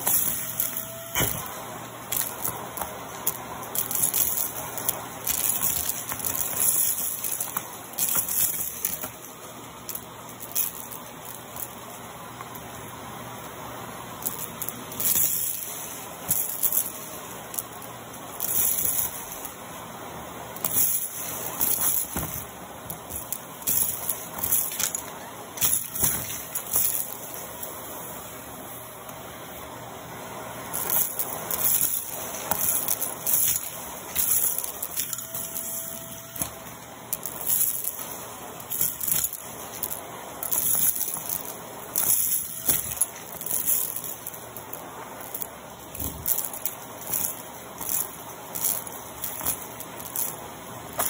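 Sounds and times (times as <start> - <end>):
vacuum cleaner running: 0.0 - 9.2, 31.6 - 37.2.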